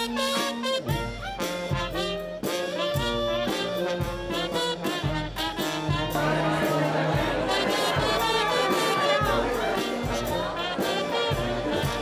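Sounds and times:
brass jazz band music: 0.0 - 12.0.

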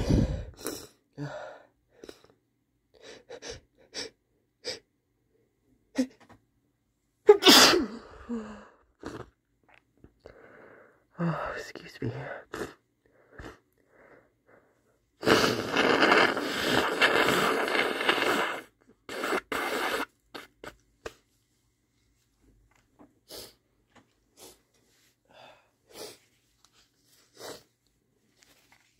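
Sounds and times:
man blowing his nose: 0.0 - 1.0, 7.3 - 8.0, 15.2 - 21.2, 23.3 - 23.6, 24.3 - 24.7, 25.8 - 26.4, 27.2 - 27.7.

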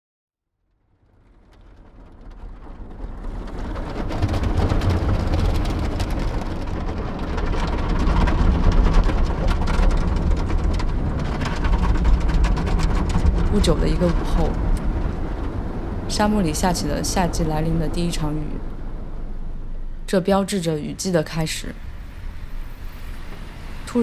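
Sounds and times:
rain pattering: 0.8 - 24.0
car rumbling on the move: 1.0 - 20.1.

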